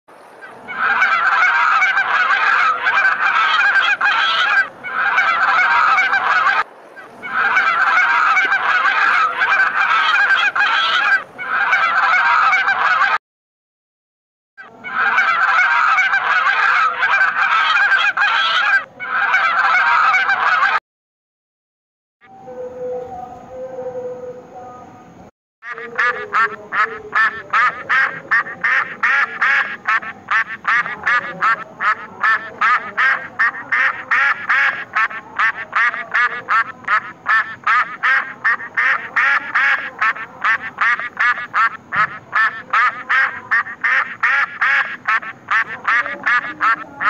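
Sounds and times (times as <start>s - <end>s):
geese honking: 0.4s - 13.2s, 14.6s - 20.8s, 25.6s - 47.0s.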